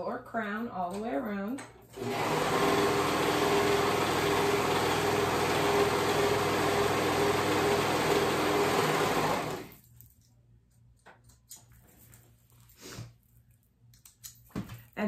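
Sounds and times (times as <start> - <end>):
serger sewing machine running: 1.9 - 9.8.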